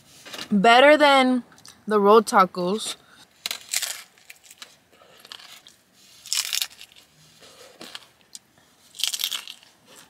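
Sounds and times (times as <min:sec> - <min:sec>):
crunchy taco bites: 0:03.4 - 0:10.0.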